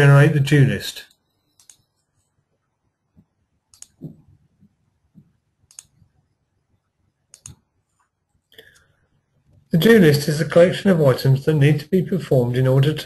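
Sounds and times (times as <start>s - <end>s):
computer mouse clicks: 1.1s - 2.2s, 3.7s - 4.2s, 5.2s - 6.1s, 7.3s - 8.9s.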